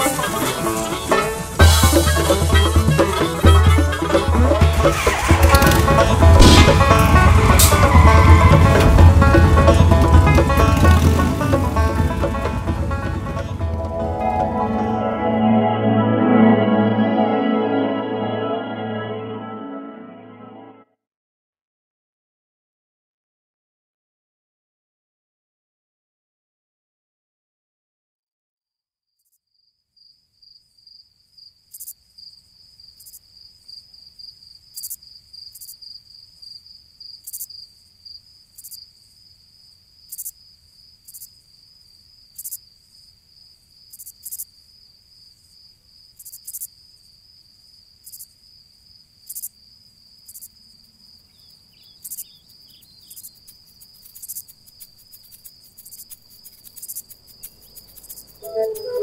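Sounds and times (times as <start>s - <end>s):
cricket trilling: 30.0s - 59.0s
sharp high clicks: 52.1s - 58.9s.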